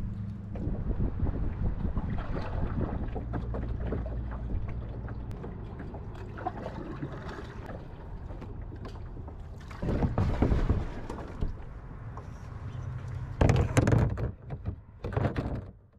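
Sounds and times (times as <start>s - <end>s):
wind rumble on microphone: 0.0s - 6.3s.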